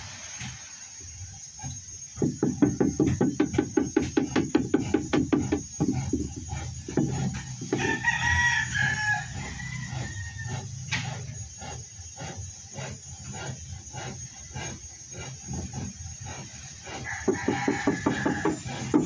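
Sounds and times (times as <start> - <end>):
rooster crowing: 7.7 - 10.7, 16.9 - 19.0.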